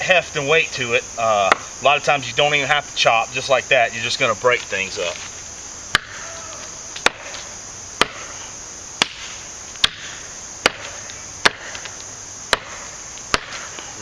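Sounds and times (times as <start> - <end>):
knife chopping into branch: 5.9 - 6.2, 7.0 - 7.4, 9.0 - 11.9, 12.5 - 13.9.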